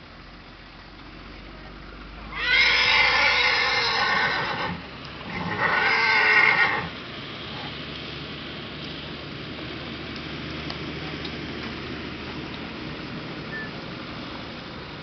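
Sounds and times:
horse neighing loudly: 0:02.3 - 0:06.9.

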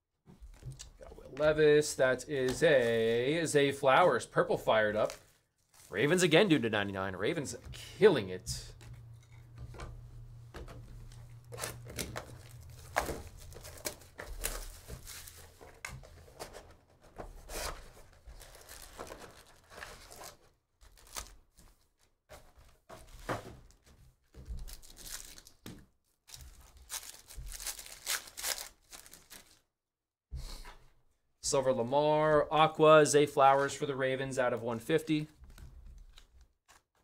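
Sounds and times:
foil packs tearing and crinkling: 0:11.4 - 0:15.6, 0:18.0 - 0:21.4, 0:24.6 - 0:25.6, 0:26.3 - 0:29.6.

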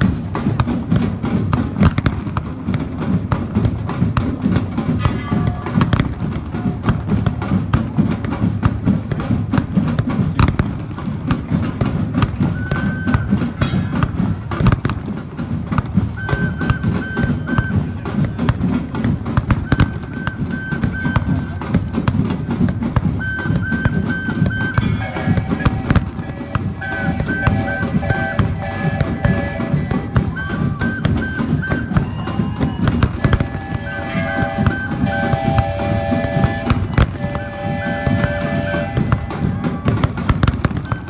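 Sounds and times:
steam whistle toots: 0:16.2 - 0:18.0, 0:19.6 - 0:21.6, 0:23.2 - 0:41.0.

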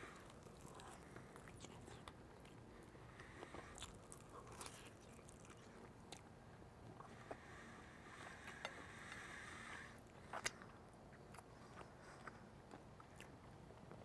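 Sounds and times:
chewing crispy chicken: 0:00.0 - 0:07.0, 0:10.0 - 0:14.0.

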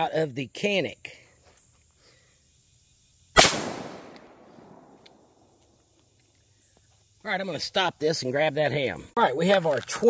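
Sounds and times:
pistol shot with echo: 0:03.4 - 0:05.3.

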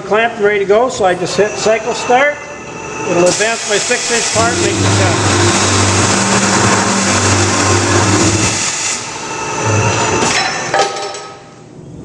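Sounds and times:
cold saw grinding through tubing: 0:03.0 - 0:10.2
pulsing motor hum: 0:04.1 - 0:10.3.

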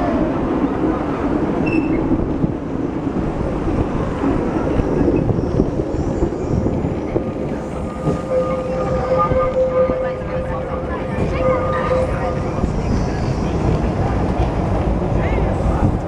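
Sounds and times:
tram rumbling on rails: 0:00.0 - 0:16.0
high-pitched wheel squeal: 0:01.6 - 0:02.0, 0:07.8 - 0:13.4.

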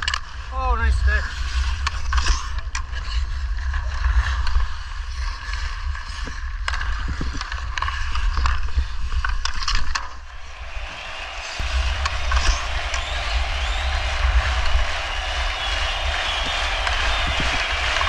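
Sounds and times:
hockey sticks and puck clicking: 0:06.1 - 0:08.8.

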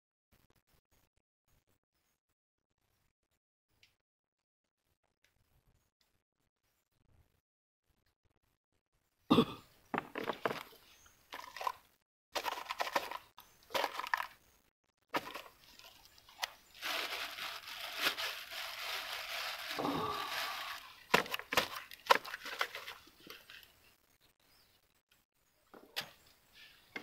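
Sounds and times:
plants rustling against boat: 0:15.1 - 0:23.7.

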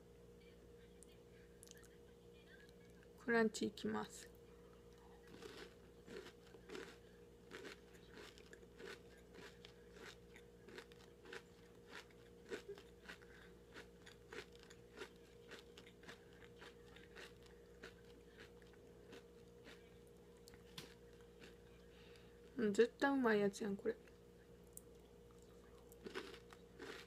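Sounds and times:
chewing crunchy chocolate bar: 0:04.9 - 0:22.2, 0:24.8 - 0:27.0.

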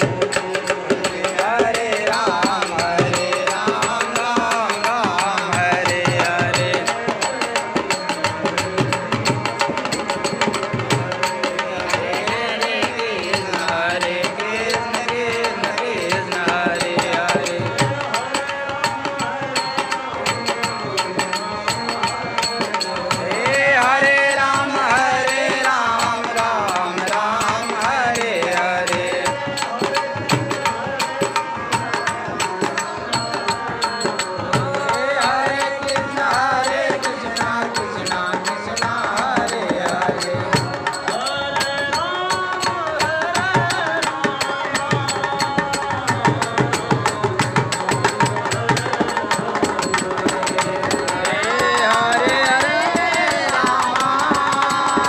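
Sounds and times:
man singing devotional song: 0:00.0 - 0:55.0
hand drum beating fast rhythm: 0:19.1 - 0:55.0.

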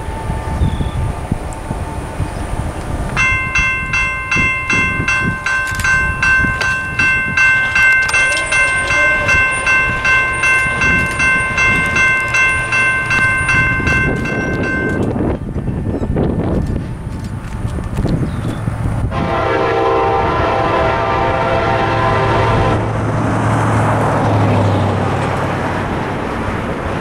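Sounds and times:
electronic crossing bell ringing: 0:03.2 - 0:16.2.

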